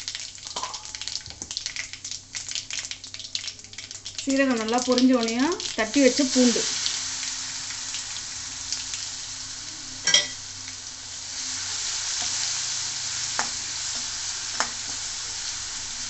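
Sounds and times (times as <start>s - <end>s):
garlic sizzling in hot oil: 0.0s - 16.0s
metal spoon clinking on pan: 10.0s - 10.4s.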